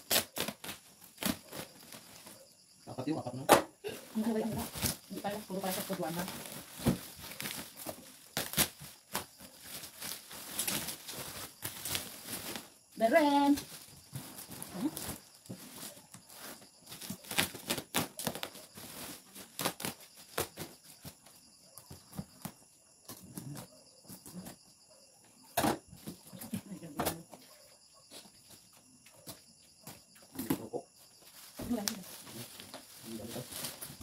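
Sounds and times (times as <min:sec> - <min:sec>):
cardboard and plastic packaging handled: 0:04.0 - 0:24.6, 0:29.2 - 0:34.0.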